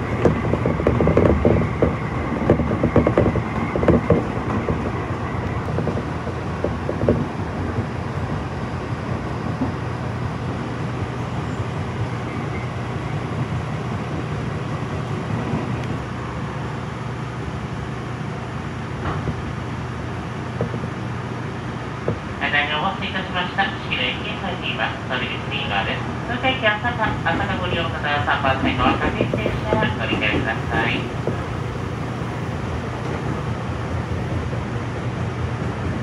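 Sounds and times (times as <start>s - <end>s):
train wheels clacking over joints: 0.0s - 8.0s
train running hum: 0.0s - 36.0s.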